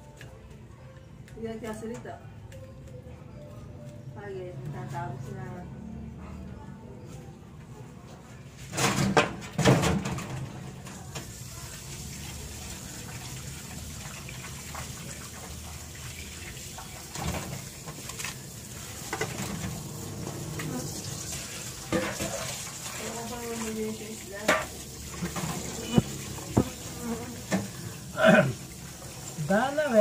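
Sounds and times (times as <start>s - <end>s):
metal basin clattering: 8.7s - 10.9s, 17.0s - 27.7s
tap water running into basin: 10.9s - 30.0s.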